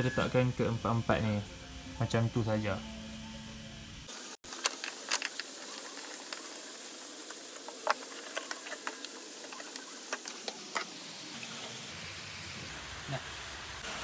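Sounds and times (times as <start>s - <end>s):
steady hiss: 0.0s - 14.0s
handling clicks and ticks: 4.5s - 11.0s.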